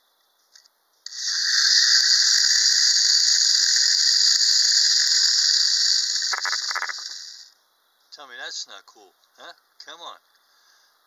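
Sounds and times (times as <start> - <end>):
wind-up toy high-pitched whir: 1.0 - 7.6.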